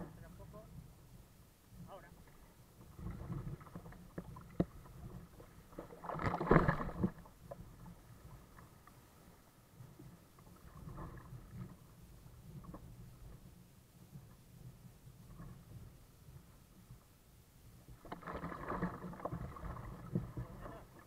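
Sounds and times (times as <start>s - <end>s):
small surf against kayak: 1.7s - 21.0s
kayak paddle splashing water: 2.9s - 7.6s, 18.0s - 21.0s.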